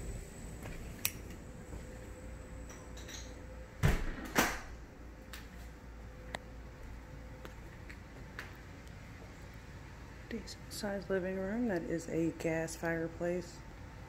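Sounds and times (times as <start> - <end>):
door shutting thuds: 3.8 - 4.7.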